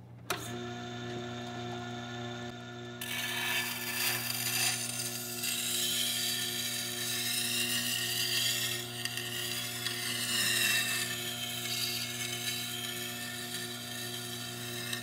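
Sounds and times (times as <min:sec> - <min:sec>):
grinder motor humming: 0:00.3 - 0:15.0
knife scraping on grinding stone: 0:03.0 - 0:15.0.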